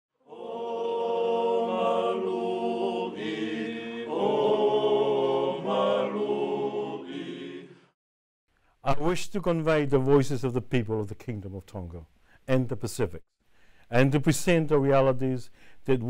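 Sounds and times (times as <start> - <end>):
chant-like group singing: 0.2 - 8.0.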